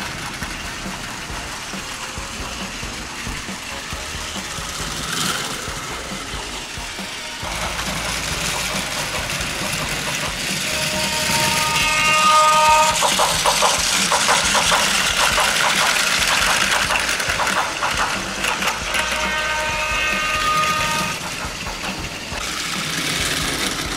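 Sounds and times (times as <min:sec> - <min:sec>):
rhythmic clacking: 0:00.0 - 0:23.9
toy train motors whirring: 0:00.0 - 0:23.9
held horn-like tone: 0:10.5 - 0:13.0, 0:18.8 - 0:21.2.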